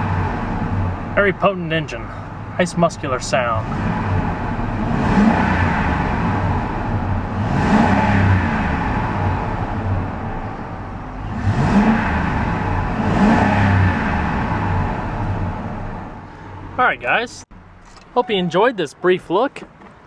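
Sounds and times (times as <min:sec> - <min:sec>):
engine revving: 0:03.4 - 0:10.0, 0:11.2 - 0:15.9.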